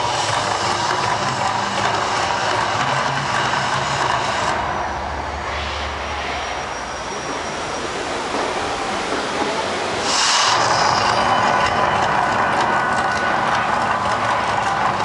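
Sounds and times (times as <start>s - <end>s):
rushing roar of fire jets: 0.0s - 15.0s
low rumble: 4.0s - 9.1s.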